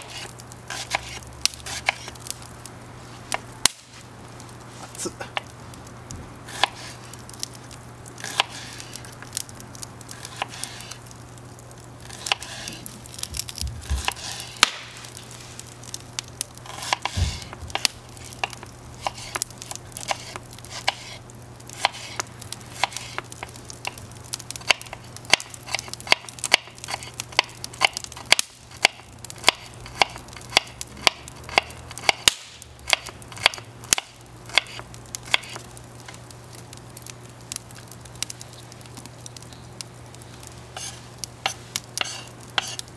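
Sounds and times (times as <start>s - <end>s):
knife chopping onion on wooden board: 0.0s - 2.1s, 6.5s - 6.8s, 16.7s - 17.8s, 25.3s - 32.2s, 40.8s - 42.8s
campfire crackling: 0.0s - 42.9s.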